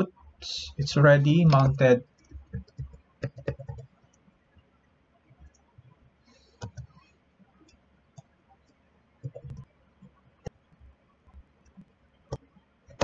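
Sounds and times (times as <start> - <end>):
keyboard keystrokes: 1.4 - 3.9, 9.2 - 9.7.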